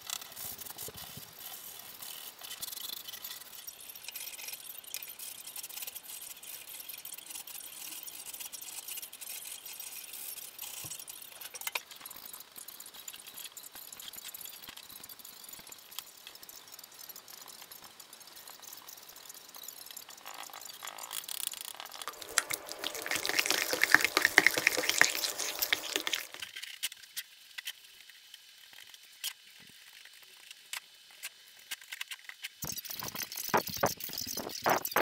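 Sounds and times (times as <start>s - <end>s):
paint stirred in plastic tub: 22.0s - 26.4s
paintbrush strokes: 22.0s - 26.4s.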